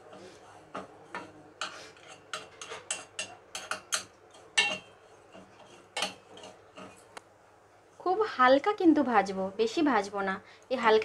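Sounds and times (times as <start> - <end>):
metal spatula scraping a pan: 0.0 - 7.1.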